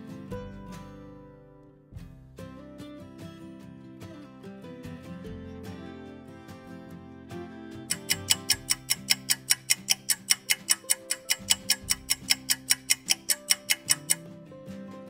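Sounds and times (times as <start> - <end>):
background music: 0.0 - 15.0
fast clock ticking: 7.9 - 14.2.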